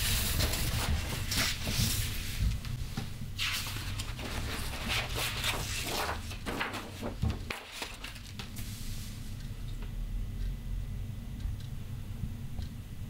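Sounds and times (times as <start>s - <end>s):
paper sheets rustling: 0.0s - 2.6s, 3.4s - 8.8s
low steady hum: 0.0s - 13.0s.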